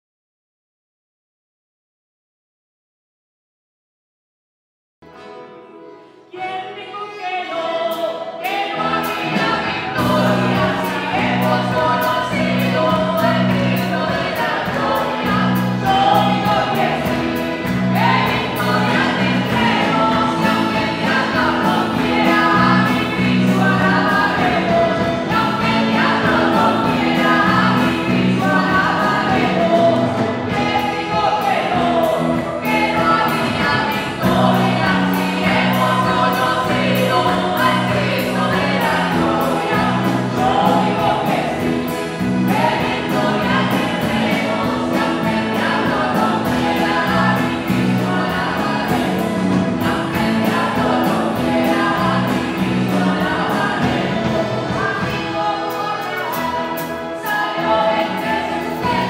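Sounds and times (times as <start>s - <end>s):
accordion: 5.0s - 6.8s, 7.9s - 59.0s
acoustic guitar: 5.0s - 59.0s
women singing into microphones: 6.3s - 59.0s
drum kit: 7.9s - 59.0s.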